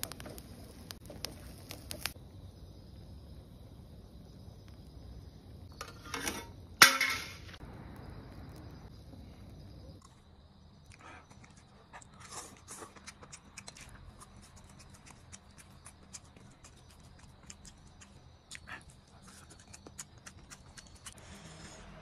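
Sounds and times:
steady hiss: 0.0 - 10.0
chewing and lip smacks: 10.9 - 21.2.

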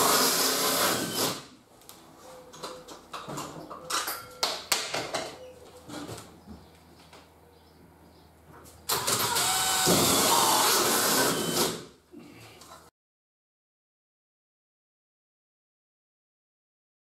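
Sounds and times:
cordless drill running: 0.0 - 1.4, 8.9 - 11.9.

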